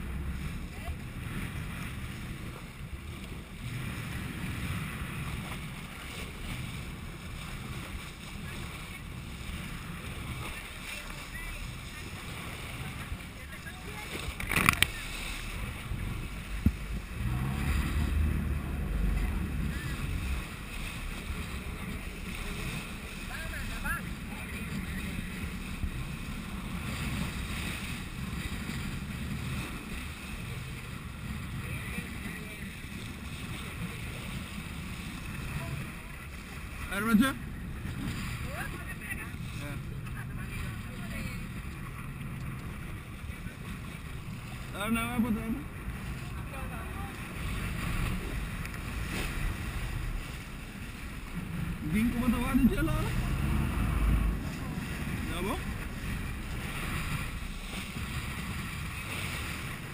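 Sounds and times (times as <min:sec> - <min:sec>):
wind on microphone: 0:00.0 - 0:23.3
wind buffeting microphone: 0:00.0 - 0:44.8, 0:45.4 - 0:59.9
sea water splashing and rushing: 0:00.0 - 0:59.9
steady low rumble: 0:00.0 - 0:59.9.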